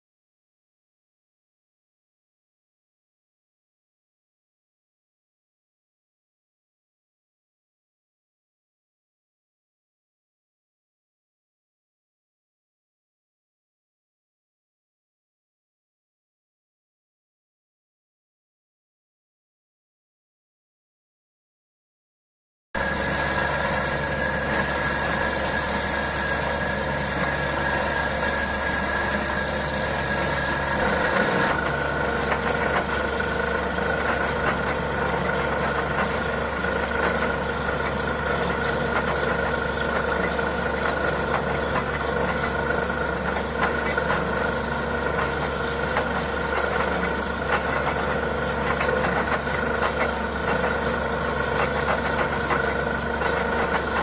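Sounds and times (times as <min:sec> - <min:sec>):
air compressor blowing water: 0:22.8 - 0:54.0
drilling rig engine running: 0:22.8 - 0:54.0.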